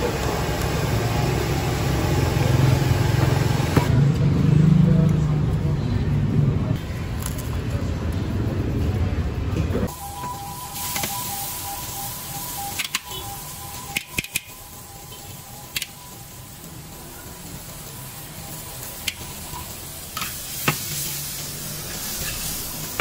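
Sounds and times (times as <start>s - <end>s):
food sizzling in a wok: 0.0s - 3.8s, 9.9s - 23.0s.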